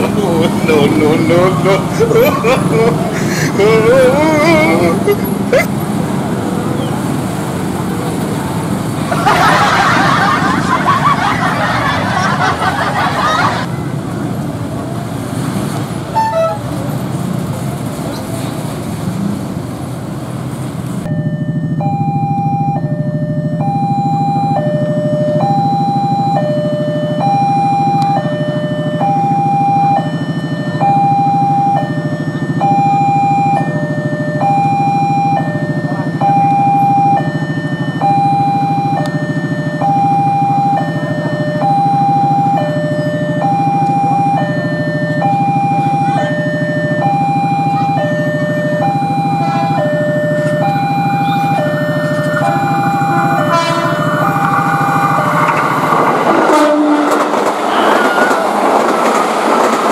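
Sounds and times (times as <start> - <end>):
level crossing two-tone alarm: 21.0 - 58.4.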